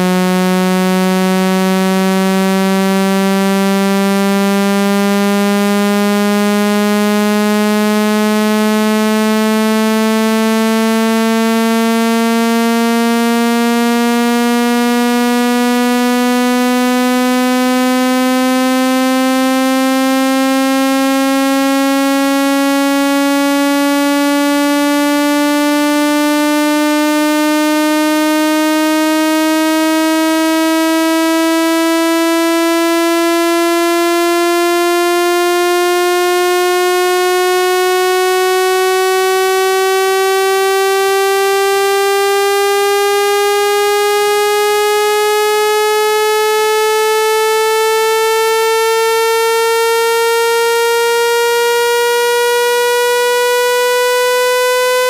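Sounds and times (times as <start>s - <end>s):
buzzy tone rising in pitch: 0.0s - 55.0s.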